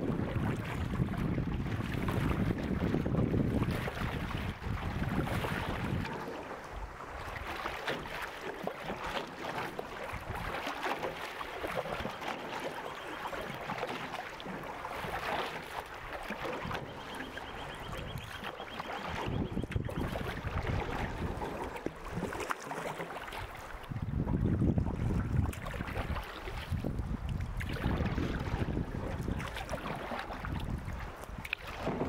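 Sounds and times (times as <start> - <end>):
wind rumble on microphone: 0.0 - 8.2, 10.0 - 10.7, 16.2 - 22.4, 23.3 - 32.0
canoe paddle splashing water: 0.0 - 32.0.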